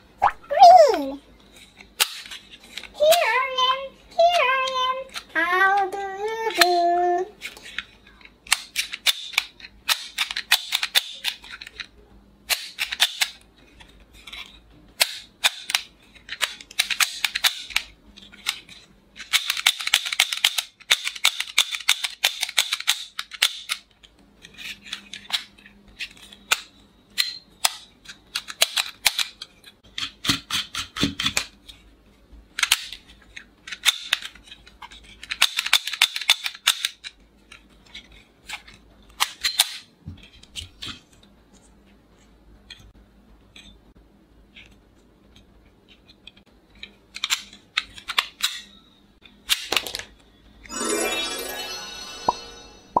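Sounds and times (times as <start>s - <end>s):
toy gun rapid clicks: 19.2s - 23.8s.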